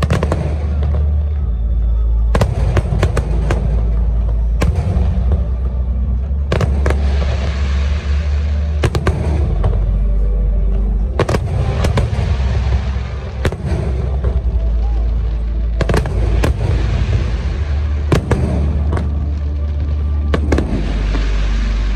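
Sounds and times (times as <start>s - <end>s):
fireworks sharp cracks: 0.0s - 10.4s, 11.2s - 21.9s
fireworks booming rumble: 0.0s - 21.9s.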